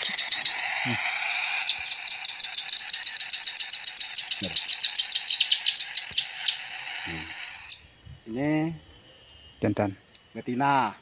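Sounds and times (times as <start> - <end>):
nuthatch sharp high chips: 0.0 - 7.8.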